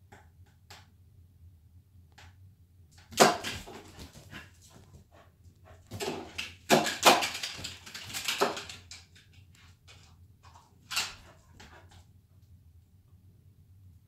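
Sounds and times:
dog claws skidding on tiled floor: 3.1 - 4.9, 5.7 - 12.0.

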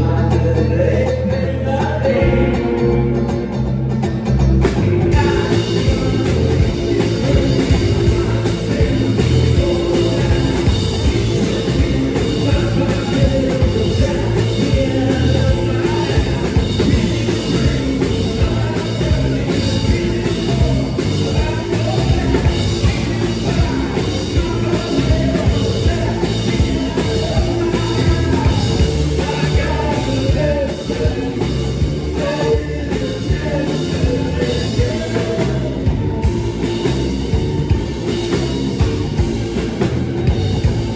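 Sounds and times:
electric guitar: 0.0 - 40.9
live rock band playing: 0.0 - 40.9
drum beat: 4.6 - 40.9
person singing: 4.8 - 36.3.

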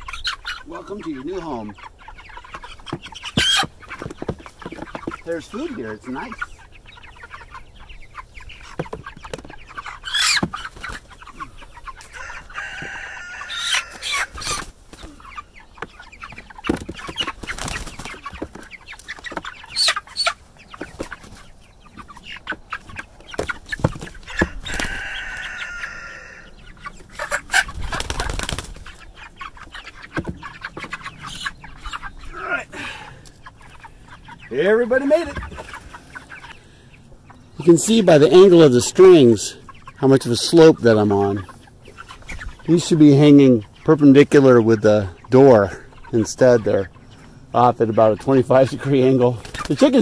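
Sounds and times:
chickens clucking and calling: 0.0 - 50.0
knocks and scuffles of birds handled: 1.7 - 7.6, 8.4 - 25.9, 26.8 - 32.4, 34.9 - 36.6, 48.7 - 50.0.

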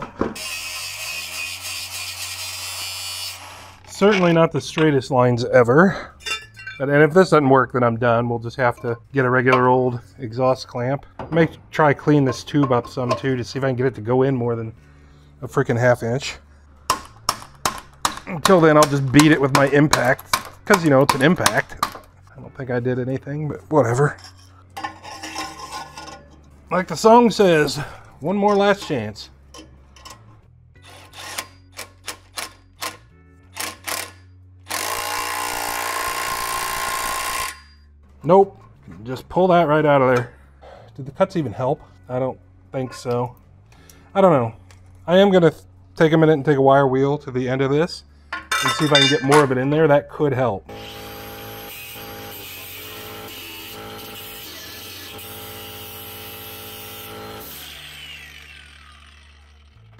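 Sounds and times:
impact wrench hammering: 16.9 - 22.1, 48.4 - 49.5
wire wheel scrubbing metal: 23.9 - 31.6.

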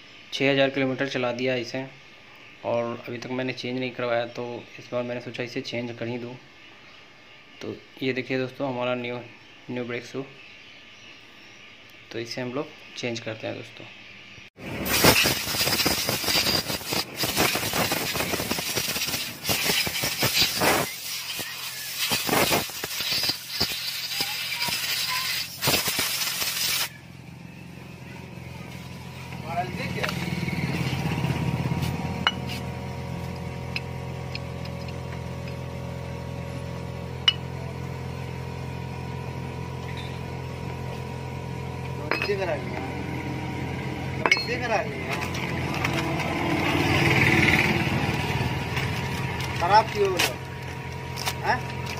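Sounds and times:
compressed air blow gun hissing: 14.7 - 27.0
low hum: 26.2 - 51.9.

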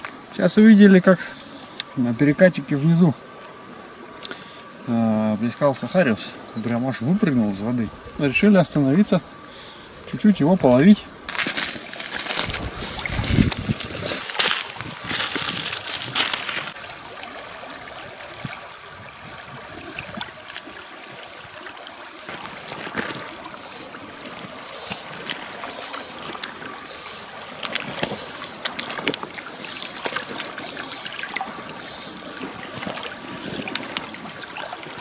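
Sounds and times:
river water running: 0.0 - 35.0
fly line swishing through air: 24.6 - 28.7, 29.4 - 32.4.

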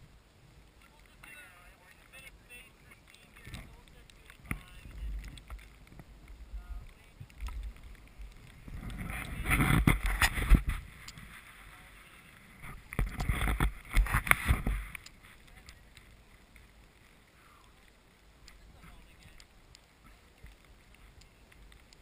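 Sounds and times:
wind buffeting microphone: 3.2 - 16.8.

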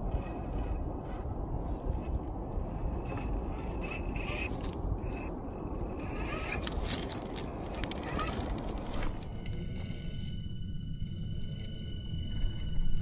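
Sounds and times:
motor and gear whine: 0.0 - 13.0
steady low rumble: 0.0 - 13.0
tyres crunching on rocks: 5.9 - 9.6.

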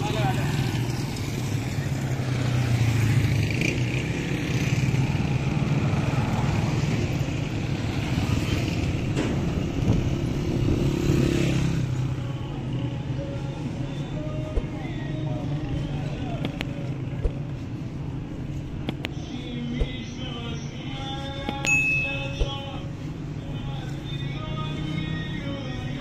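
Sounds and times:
small motorcycles passing: 10.5 - 12.0.

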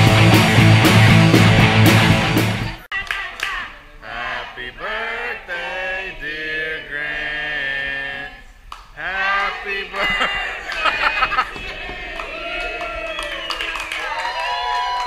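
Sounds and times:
voices singing: 2.6 - 13.1.

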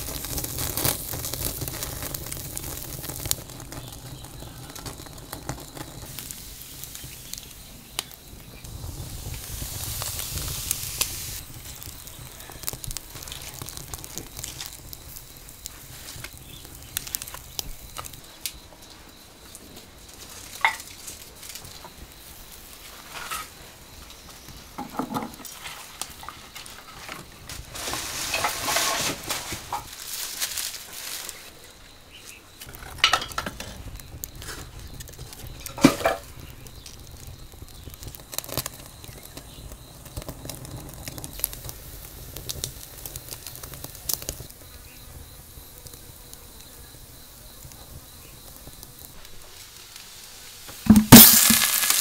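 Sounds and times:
wood fire crackling: 0.0 - 52.0
firewood and tongs knocking: 20.6 - 21.0, 24.8 - 25.5, 32.7 - 33.8, 35.6 - 36.3, 50.8 - 52.0.

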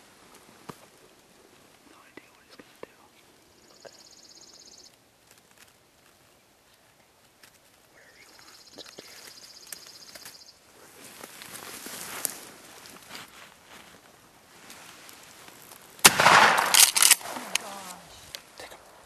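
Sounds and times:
rustling: 4.8 - 19.0.

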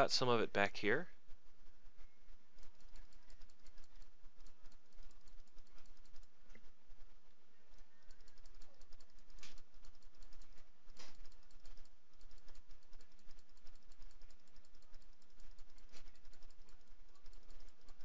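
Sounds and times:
computer mouse clicking: 1.3 - 18.0.

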